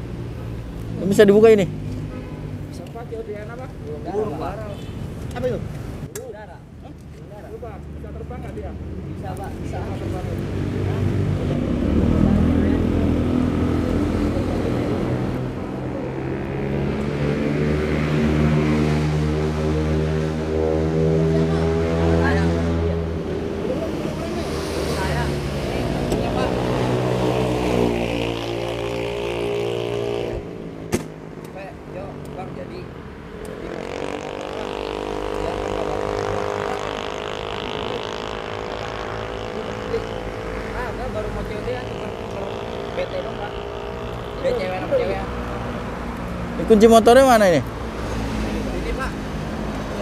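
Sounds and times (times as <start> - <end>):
motorcycle engines idling: 19.2 - 48.0
motorcycle engine running: 33.7 - 44.9.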